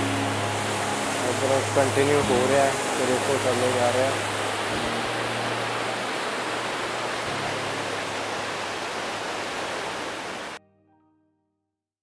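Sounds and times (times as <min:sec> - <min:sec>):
faint musical notes: 0:00.0 - 0:08.4
stream rushing over boulders: 0:00.0 - 0:10.6.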